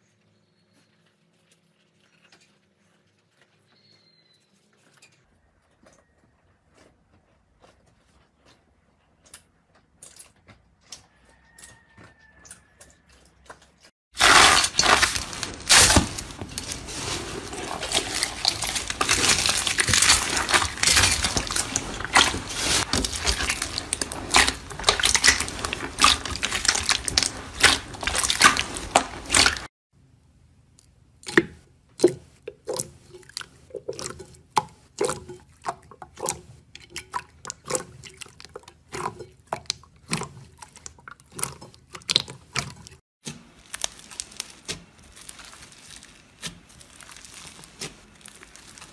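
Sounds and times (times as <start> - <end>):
wet slime squishes: 6.6 - 29.7, 30.7 - 48.9
foam-bead slime crackling: 14.2 - 29.7, 37.6 - 48.9.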